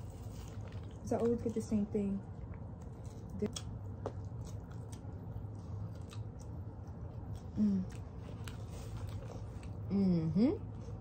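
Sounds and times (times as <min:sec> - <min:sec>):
low steady hum: 0:00.0 - 0:11.0
chewing and biting: 0:02.5 - 0:09.9.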